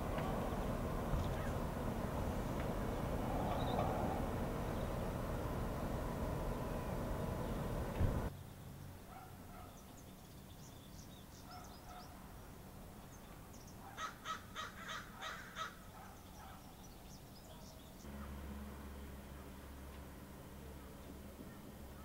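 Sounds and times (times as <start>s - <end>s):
birds calling: 0.0s - 8.3s, 9.1s - 12.2s, 13.0s - 18.5s
low steady rumble: 0.0s - 8.3s, 18.0s - 22.0s.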